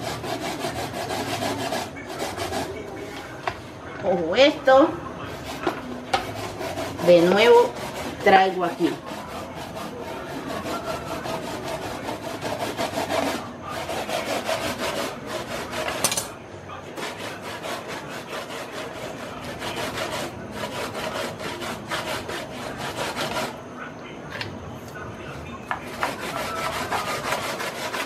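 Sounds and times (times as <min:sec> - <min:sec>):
knife scraping fish flesh: 0:05.3 - 0:16.3, 0:25.8 - 0:28.0.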